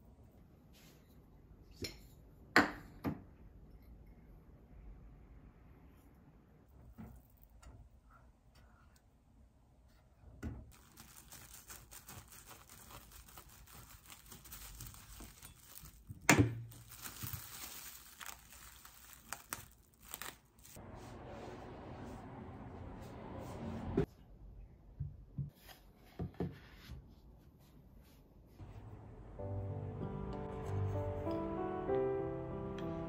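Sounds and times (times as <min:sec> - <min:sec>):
cling film crinkling: 0:10.7 - 0:20.8.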